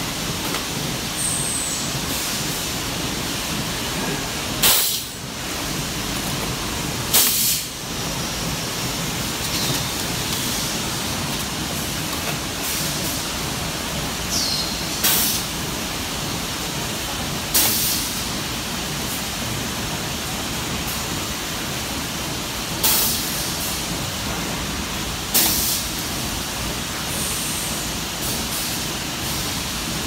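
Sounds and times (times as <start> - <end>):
compressed air hisses: 4.6 - 5.2, 7.1 - 7.8.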